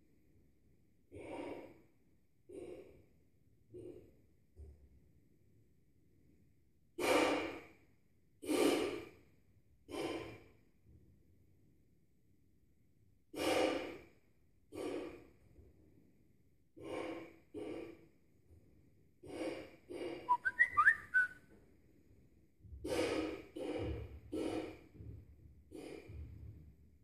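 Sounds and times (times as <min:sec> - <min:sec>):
man blowing up balloon: 0:19.3 - 0:21.3
squeaky balloon whistle: 0:20.3 - 0:21.3.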